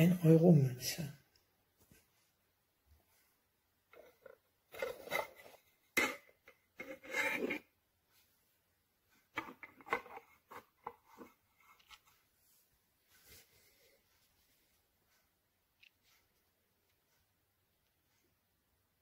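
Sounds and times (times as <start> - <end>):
rubbing and scraping: 3.9 - 8.2, 9.1 - 14.7.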